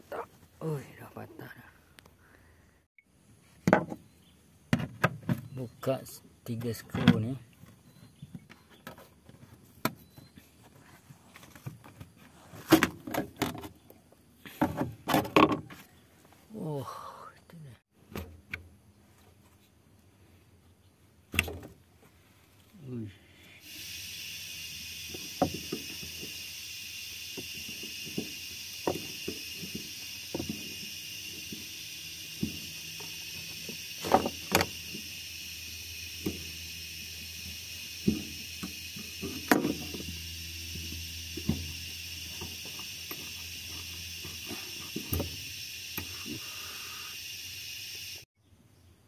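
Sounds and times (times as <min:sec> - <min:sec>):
steady hiss: 0:22.4 - 0:48.3.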